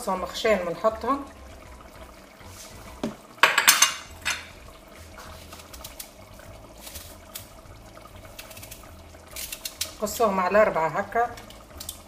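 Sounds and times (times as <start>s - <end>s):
stew bubbling with small pops: 4.0s - 10.2s, 11.2s - 12.0s.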